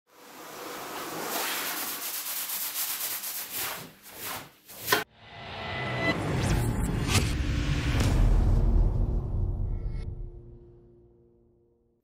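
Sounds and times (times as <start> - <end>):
rug being scrubbed: 0.9 - 5.0.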